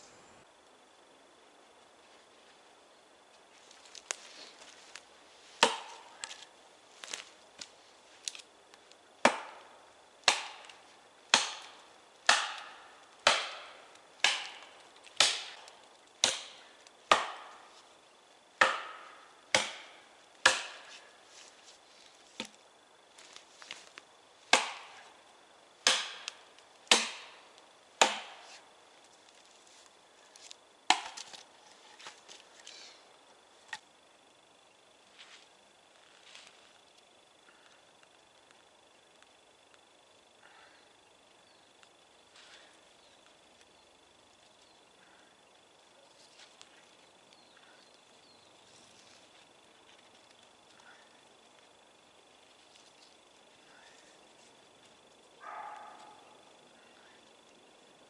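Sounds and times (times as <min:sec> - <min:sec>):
hatchet chopping wood: 0:05.6 - 0:06.4, 0:09.2 - 0:17.7, 0:18.6 - 0:21.1, 0:22.4 - 0:22.6, 0:24.5 - 0:25.1, 0:25.8 - 0:28.6, 0:30.8 - 0:31.4.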